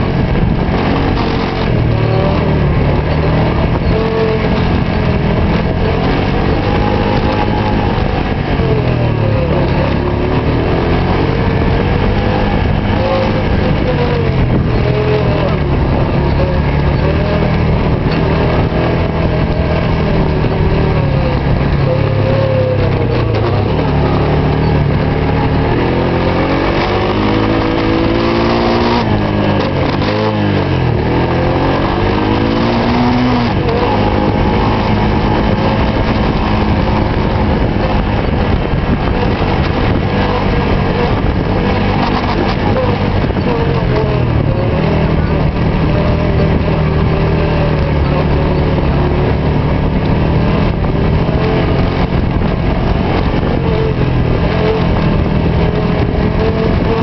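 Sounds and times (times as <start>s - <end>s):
quad bike engine revving: 0.0s - 57.0s.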